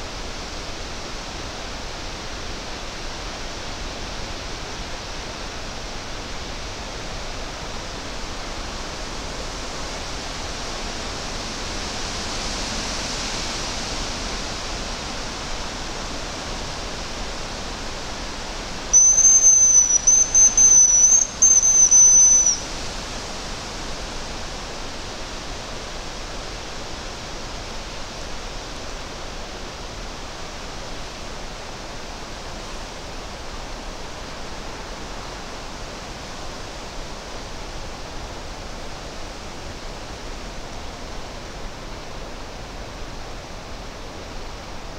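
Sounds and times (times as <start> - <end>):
wind through forest canopy: 0.0 - 44.9
thin high decoy whistle: 18.9 - 22.7.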